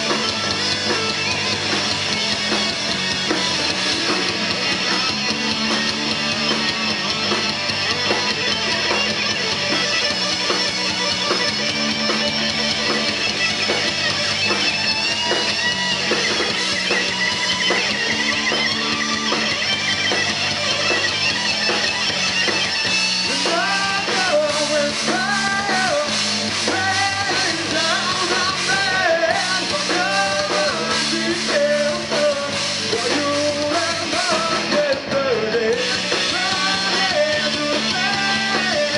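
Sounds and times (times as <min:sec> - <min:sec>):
rock band playing live: 0:00.0 - 0:38.9
lead vocal singing: 0:23.3 - 0:38.9.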